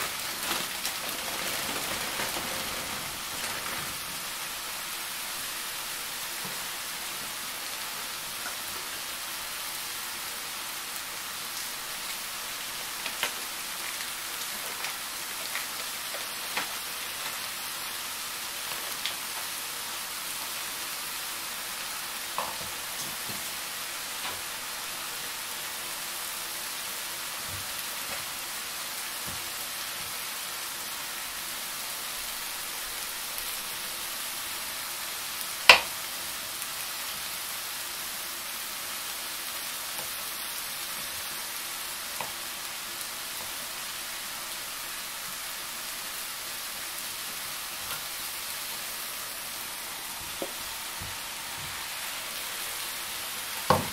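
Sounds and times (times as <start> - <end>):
foil crinkling: 0.0 - 6.0
food sizzling in a pan: 0.0 - 53.9.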